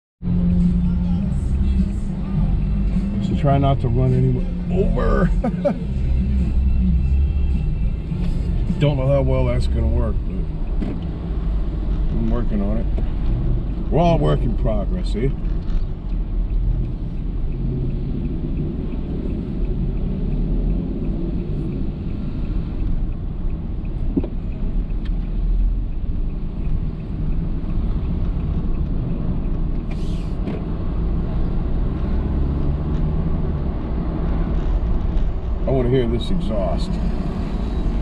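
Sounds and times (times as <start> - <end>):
car engine and tyre rumble: 0.2 - 38.0.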